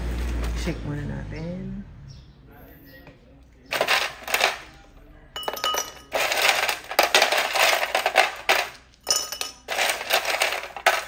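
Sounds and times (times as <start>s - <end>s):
drink shaken in container rattling: 3.7s - 4.6s, 5.6s - 11.0s.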